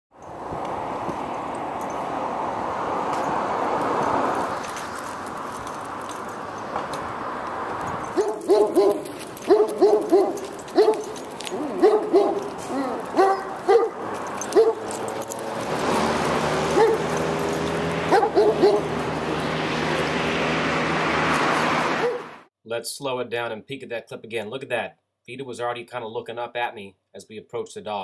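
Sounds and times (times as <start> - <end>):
dog barking: 8.2 - 14.9, 16.7 - 17.1, 18.1 - 19.0, 22.0 - 22.3.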